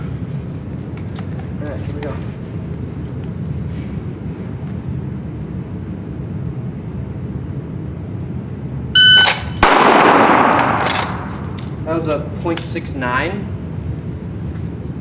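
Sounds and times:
shot timer beep: 9.0s - 9.5s
pistol shot echoing indoors: 9.3s - 11.6s.

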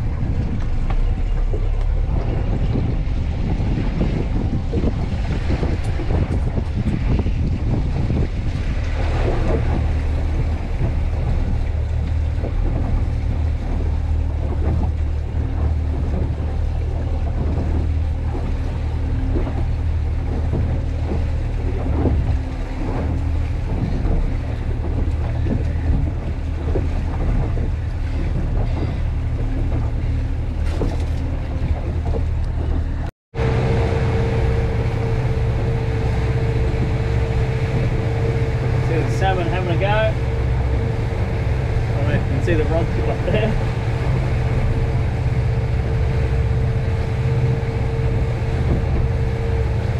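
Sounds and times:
boat engine running: 0.0s - 49.9s
water noise: 0.0s - 49.9s
wind: 0.0s - 49.9s
high-pitched whine: 33.4s - 49.9s.

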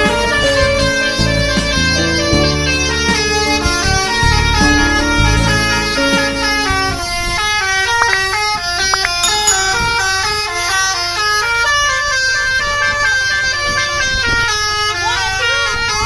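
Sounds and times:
multi-tone bus air horn tune: 11.0s - 16.0s.

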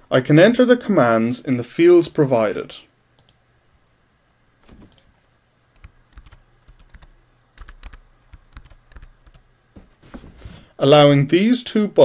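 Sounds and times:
computer keyboard key clicks: 5.8s - 9.4s.

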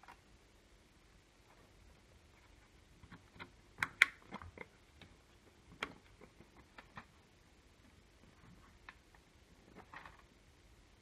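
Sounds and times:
small plastic clicks: 3.0s - 7.2s.

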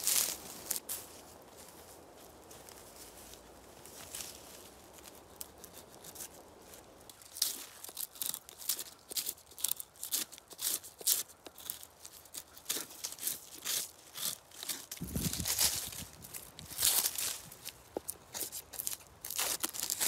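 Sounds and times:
knife scraping wood: 7.1s - 15.8s, 18.0s - 20.0s.

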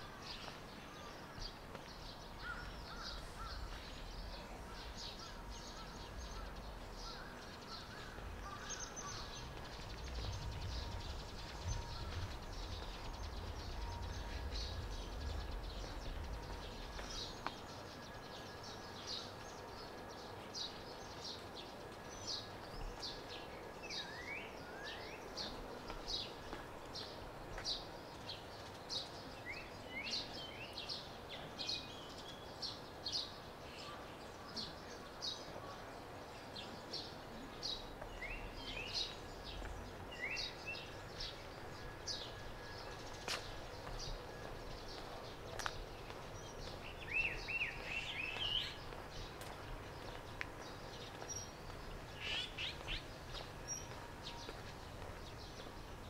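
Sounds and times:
birds chirping: 0.0s - 56.0s
low rumble: 9.1s - 17.4s.

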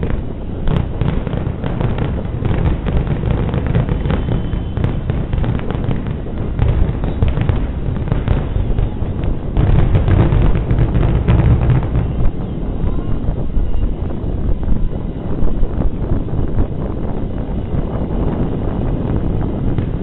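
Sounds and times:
firework shells bursting: 0.0s - 13.2s.

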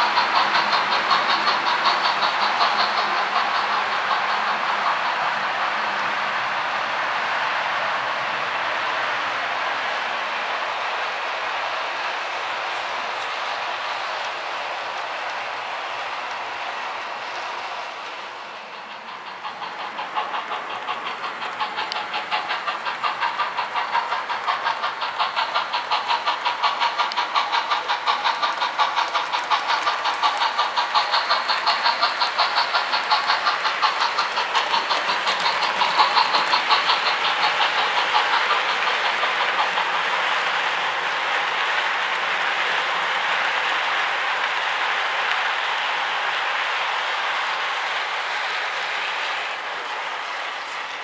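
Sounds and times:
model train clicking on track: 0.0s - 51.0s
model train motor whir: 0.0s - 51.0s.

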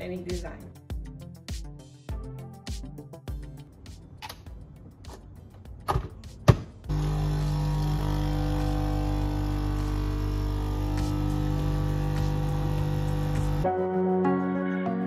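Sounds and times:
coffee machine pump humming: 6.9s - 13.6s.

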